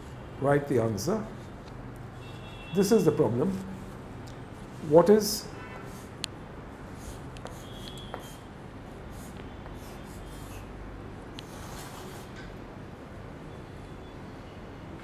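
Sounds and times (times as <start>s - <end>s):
chalk scratching on slate: 6.9s - 8.5s, 9.1s - 10.7s.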